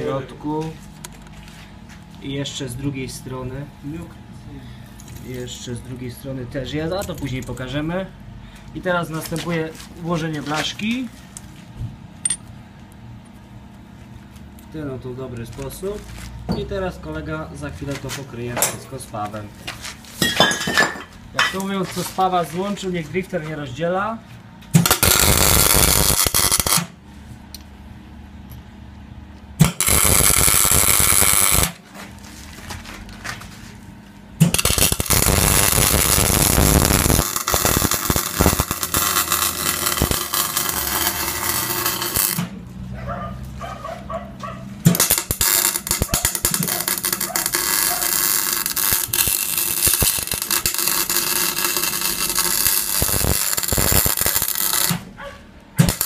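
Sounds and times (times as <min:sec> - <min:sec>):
welding arc crackling: 0:24.8 - 0:27.0, 0:29.6 - 0:31.8, 0:34.4 - 0:42.6, 0:44.9 - 0:55.1, 0:55.8 - 0:56.0.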